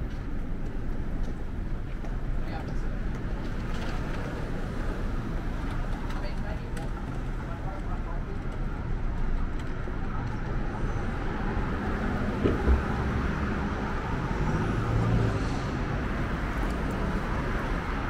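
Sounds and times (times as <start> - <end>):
road traffic hum and rumble: 0.0 - 18.0
short low thump: 12.4 - 13.1.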